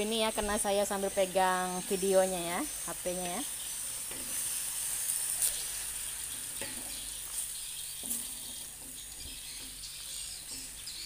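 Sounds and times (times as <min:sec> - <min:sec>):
leaves sizzling in hot oil: 0:00.0 - 0:11.0
metal spatula scraping pan: 0:03.2 - 0:11.0.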